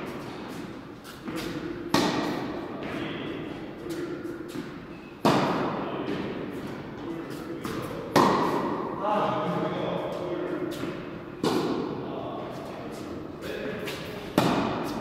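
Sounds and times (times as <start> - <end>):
tennis racket hitting ball: 0.0 - 8.9, 10.6 - 12.0, 13.8 - 15.0.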